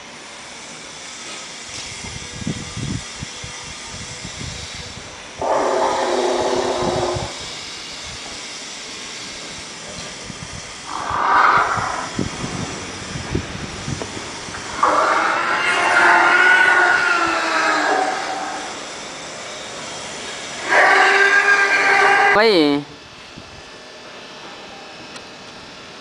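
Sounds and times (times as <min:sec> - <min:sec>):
steady hiss: 0:00.0 - 0:22.3
dinosaur costume roaring: 0:05.4 - 0:07.4, 0:10.9 - 0:12.2, 0:14.6 - 0:18.8, 0:20.6 - 0:22.4.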